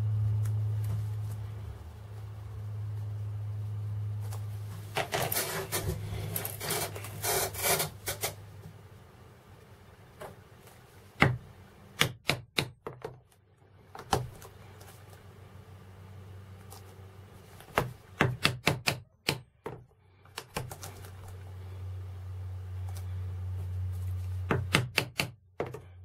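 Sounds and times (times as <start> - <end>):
faint low hum: 0.0 - 26.0.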